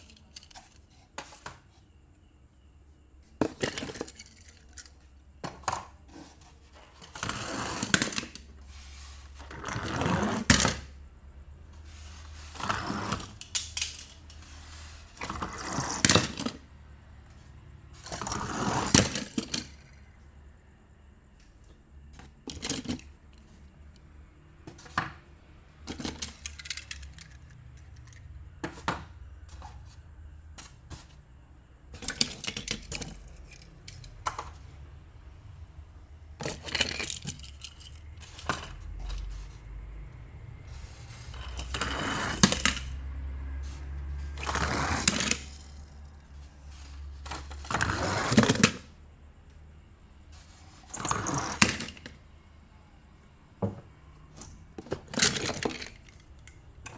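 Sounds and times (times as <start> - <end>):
toy cars clattering in a box: 0.0 - 1.4, 3.4 - 10.9, 11.9 - 16.6, 17.9 - 20.1, 22.2 - 23.5, 25.8 - 28.8, 31.9 - 34.6, 36.4 - 39.4, 40.7 - 43.1, 44.2 - 49.0, 50.7 - 52.2, 54.4 - 56.9
rattling scrapes: 11.8 - 16.6, 40.6 - 43.0.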